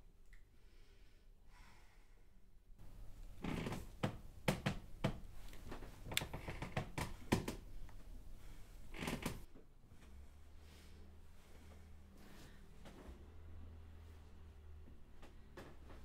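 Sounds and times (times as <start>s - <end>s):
sharp irregular clicks and knocks: 4.0s - 8.0s.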